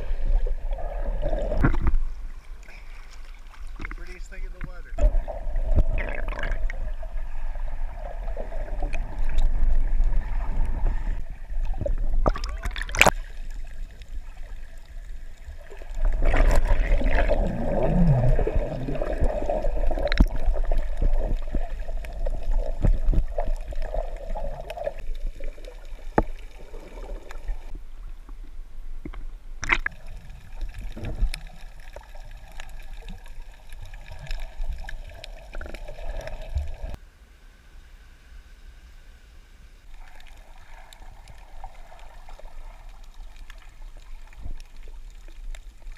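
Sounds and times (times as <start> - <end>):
water sloshing and bubbling: 0.0 - 37.0, 39.8 - 45.9
low rumble: 4.0 - 25.4.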